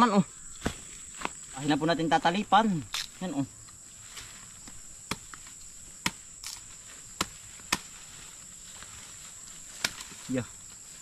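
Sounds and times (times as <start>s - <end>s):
high insect buzz: 0.0s - 11.0s
knife chopping roots: 4.6s - 8.0s, 9.8s - 10.2s.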